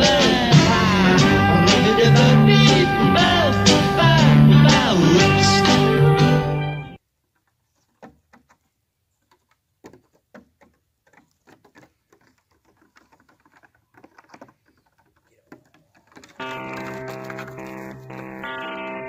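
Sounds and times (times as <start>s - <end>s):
song playing: 0.0s - 7.0s, 16.4s - 19.0s
hooves tapping on wooden table: 7.4s - 18.5s.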